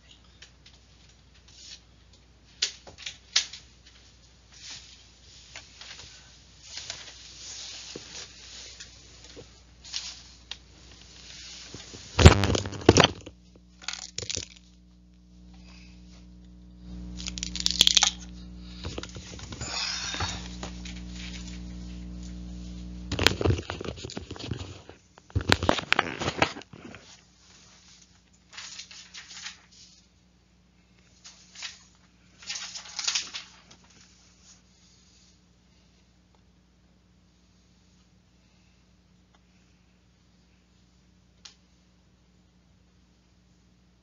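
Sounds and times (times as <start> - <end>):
steady low hum: 3.8 - 44.0.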